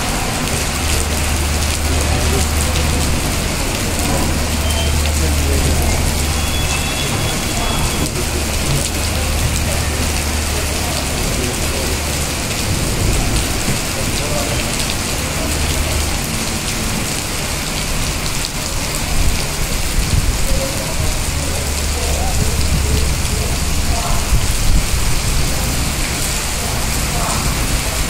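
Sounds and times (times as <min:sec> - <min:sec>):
rain on hard surfaces: 0:00.0 - 0:28.0.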